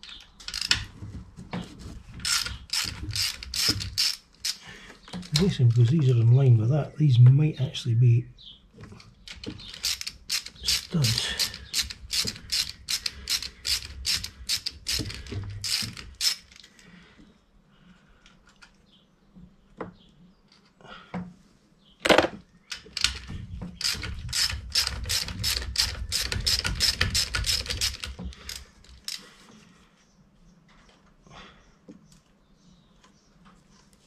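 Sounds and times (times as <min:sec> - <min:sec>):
socket ratchet clicking: 0:02.2 - 0:04.6, 0:09.4 - 0:16.5, 0:23.8 - 0:29.2.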